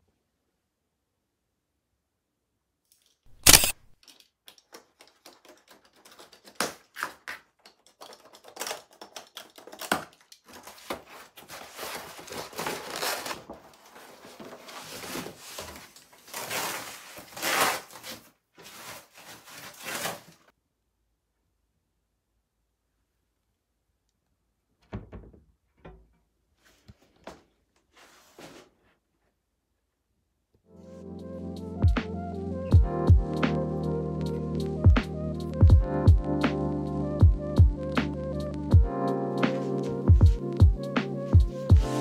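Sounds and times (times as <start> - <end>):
small clicks: 2.9 - 6.6
cardboard and foam rustling: 4.8 - 20.5, 26.6 - 29.0, 41.2 - 42.0.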